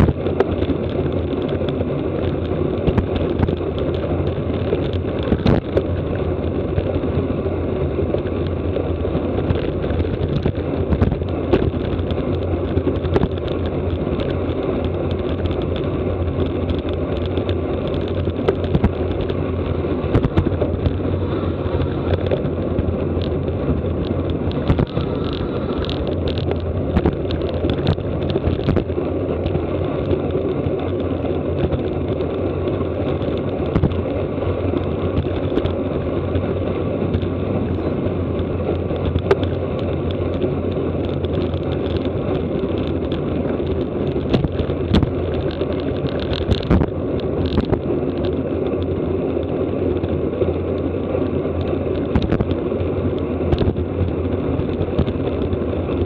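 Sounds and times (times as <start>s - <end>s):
sharp clicks and knocks: 0.0s - 7.2s, 7.9s - 56.0s
road noise: 0.0s - 56.0s
wind buffeting microphone: 0.0s - 56.0s.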